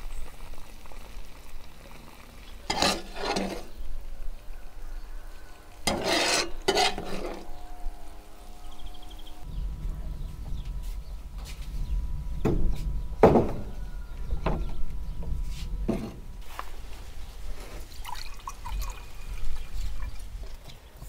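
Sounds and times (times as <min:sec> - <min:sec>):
low rumble: 0:07.8 - 0:16.4
milk pouring into glasses: 0:17.8 - 0:20.4.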